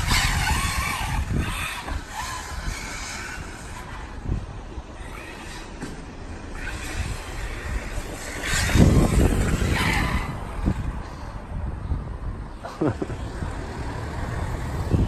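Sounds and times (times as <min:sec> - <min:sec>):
electric motor whining: 0:00.0 - 0:11.3
tyre noise on tarmac: 0:00.0 - 0:11.8.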